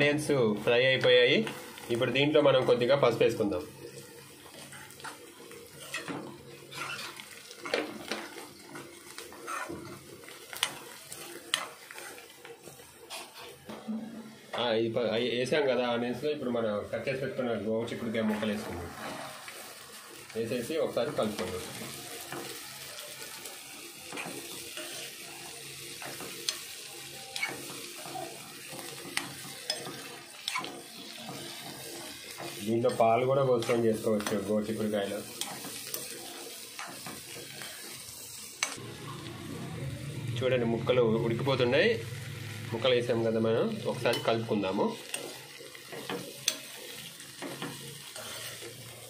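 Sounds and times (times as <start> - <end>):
beans sizzling in hot oil: 0.0 - 49.0
onions frying: 0.0 - 49.0
steel spoon scraping a pan: 4.6 - 8.2, 9.2 - 10.8, 13.0 - 13.6, 24.1 - 25.3, 25.9 - 38.0, 45.0 - 48.8
metal spoon scraping pan: 9.3 - 9.8.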